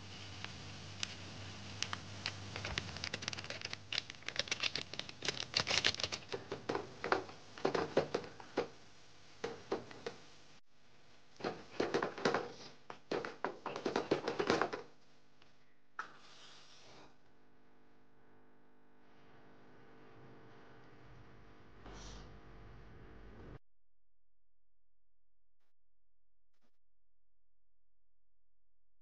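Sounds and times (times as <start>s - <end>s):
rapid tapping and clicking: 2.6s - 8.8s, 11.4s - 14.9s.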